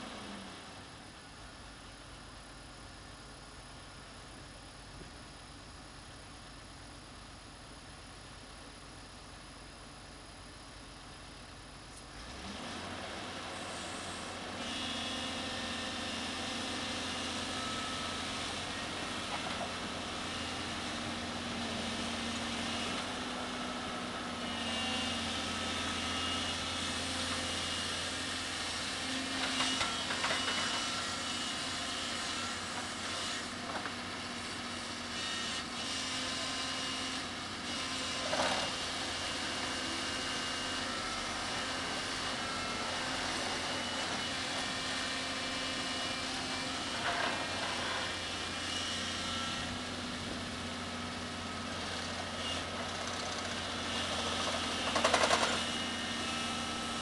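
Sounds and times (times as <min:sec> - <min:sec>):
excavator diesel engine running: 0:11.2 - 0:35.5, 0:36.2 - 0:57.0.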